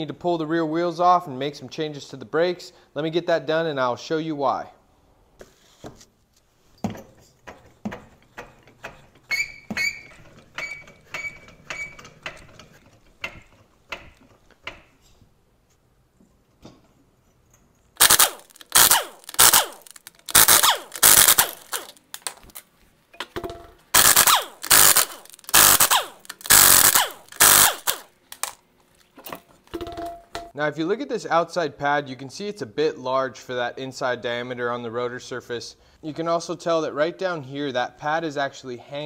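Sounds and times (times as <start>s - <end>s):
impact wrench hammering bolts: 6.9s - 15.0s, 18.0s - 22.5s, 23.3s - 28.6s.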